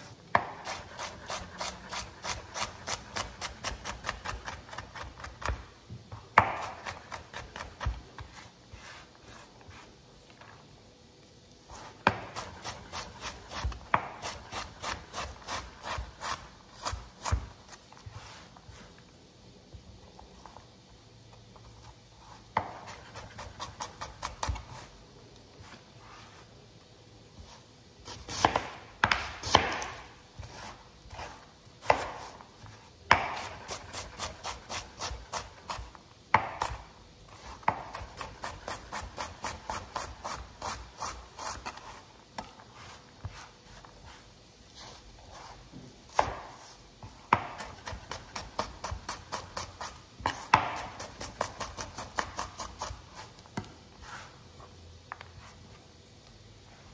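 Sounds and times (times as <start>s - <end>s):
knife chopping on cutting board: 0.3s - 9.0s, 11.8s - 18.2s, 22.5s - 24.9s, 28.0s - 36.8s, 37.4s - 44.2s, 45.3s - 54.2s.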